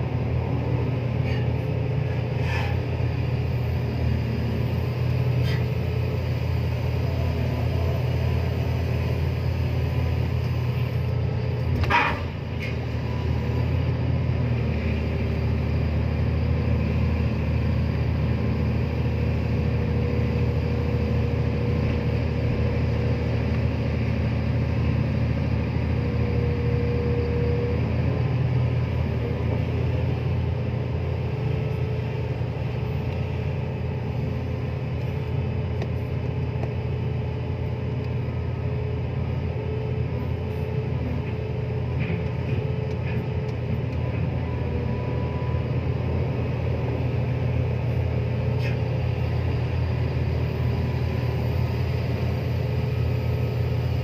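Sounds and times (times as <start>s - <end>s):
excavator engine rumbling: 0.0s - 54.0s
steady hydraulic whine: 0.0s - 54.0s.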